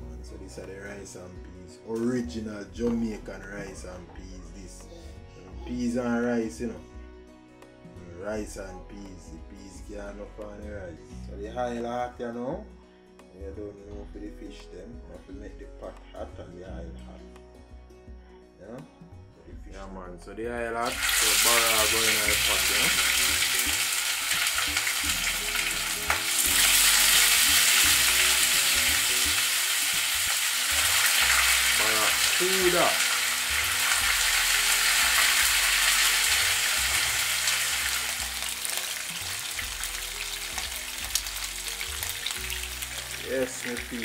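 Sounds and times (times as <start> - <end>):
fish sizzling in hot oil: 20.9 - 44.0.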